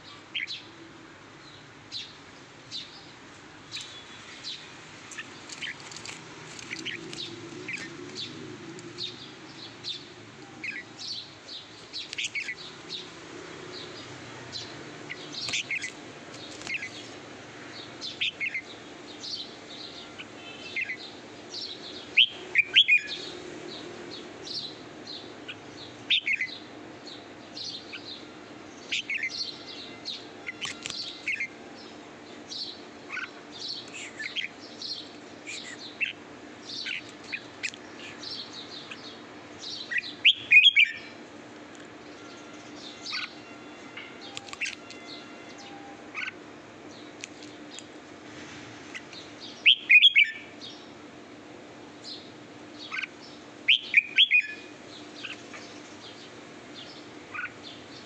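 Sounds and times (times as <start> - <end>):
bird chirping: 1.4 - 41.2, 42.0 - 47.9, 48.9 - 50.9, 52.0 - 58.0.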